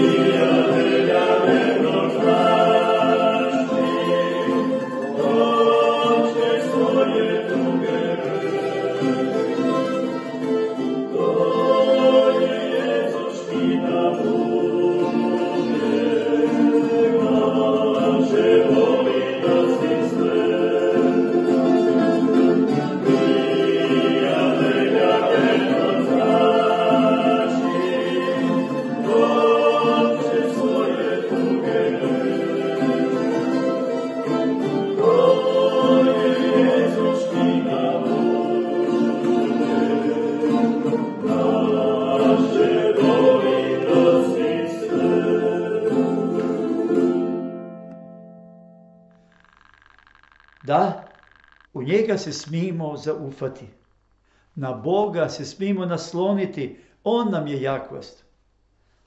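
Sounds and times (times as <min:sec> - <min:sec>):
men singing together: 0:00.0 - 0:10.0, 0:11.1 - 0:47.0
plucked mandolin-like instrument: 0:00.0 - 0:49.1
strummed acoustic guitars: 0:00.0 - 0:49.9.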